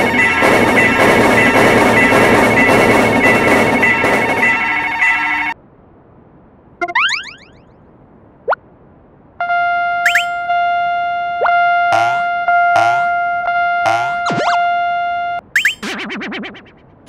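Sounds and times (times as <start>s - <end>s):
railroad crossing bell: 0.0s - 5.6s, 9.4s - 10.6s, 11.4s - 15.4s
cartoon pitch glides: 6.8s - 7.7s, 10.0s - 10.5s, 11.3s - 14.8s, 15.6s - 16.7s.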